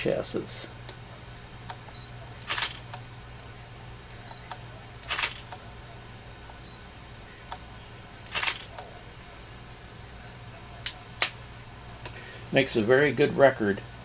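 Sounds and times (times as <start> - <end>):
faint steady hum: 0.0 - 14.0
camera shutter snap: 2.4 - 2.9, 5.0 - 5.6, 8.3 - 8.8.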